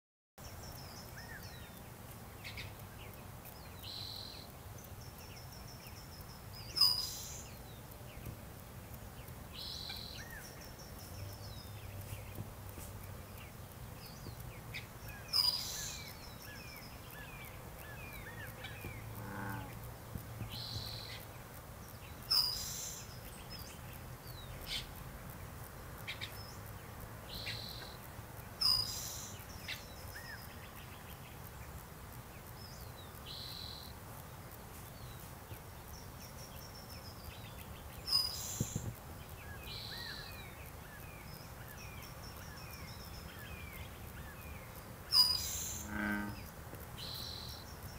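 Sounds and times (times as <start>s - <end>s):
mixed birdsong: 0.4s - 47.9s.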